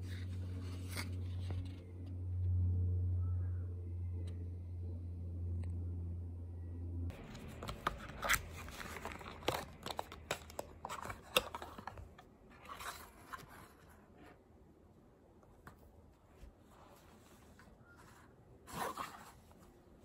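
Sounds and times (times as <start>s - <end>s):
low steady hum: 0.0s - 20.0s
cardboard box crinkling and scraping: 7.2s - 14.2s.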